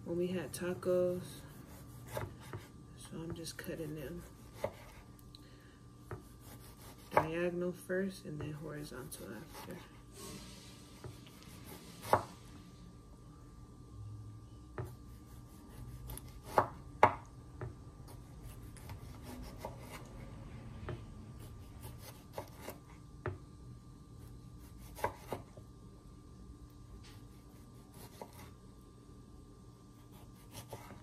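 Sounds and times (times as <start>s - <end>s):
knife chopping on wooden board: 1.6s - 2.7s, 4.2s - 5.1s, 6.0s - 7.4s, 11.0s - 12.3s, 14.8s - 20.0s, 20.8s - 23.4s, 24.6s - 25.6s, 27.8s - 28.5s, 30.1s - 31.0s.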